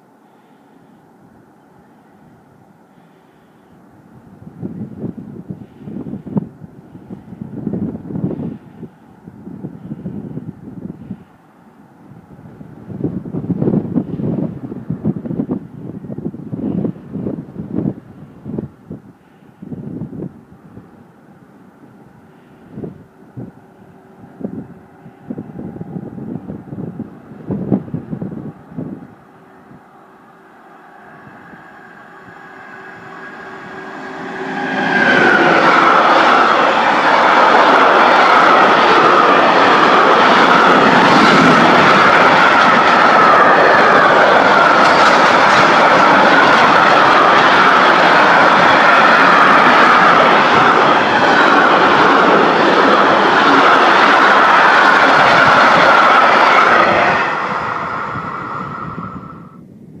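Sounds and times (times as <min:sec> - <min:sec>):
freight train rumbling past: 0:00.0 - 0:59.7
wheels ringing on rails: 0:30.0 - 0:59.6.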